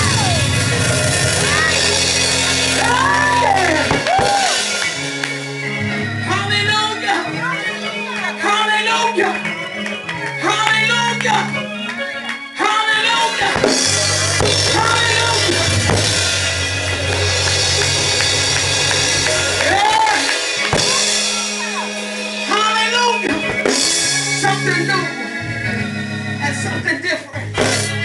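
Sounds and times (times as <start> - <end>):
drum kit with cymbals: 0.0 - 5.3, 13.3 - 25.2, 27.5 - 28.0
keyboard bass notes: 0.0 - 28.0.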